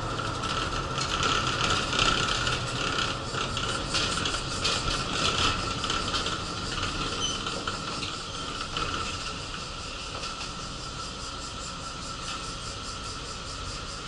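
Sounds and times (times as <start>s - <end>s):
bus running hiss and hum: 0.0s - 14.0s
clicks and rattles: 0.2s - 9.6s.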